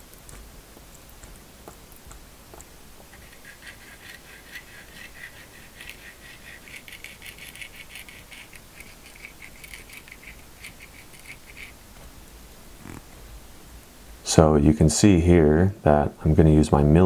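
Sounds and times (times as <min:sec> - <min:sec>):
glue nozzle scratching paper: 0:03.1 - 0:11.8.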